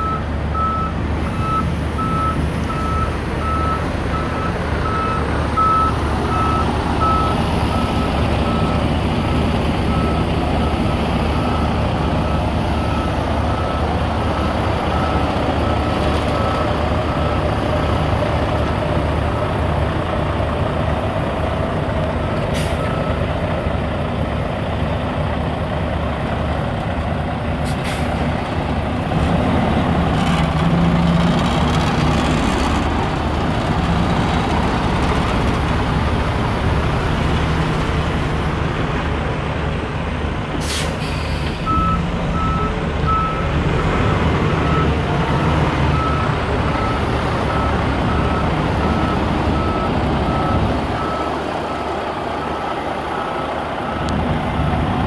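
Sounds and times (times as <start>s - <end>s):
diesel truck engine running low: 0.0s - 55.0s
air brakes hissing: 22.5s - 22.9s, 27.6s - 28.3s, 40.6s - 41.8s.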